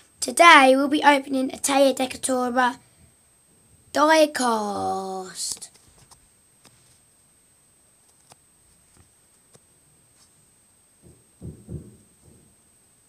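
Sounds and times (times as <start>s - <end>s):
soft low thumps: 11.0s - 12.5s.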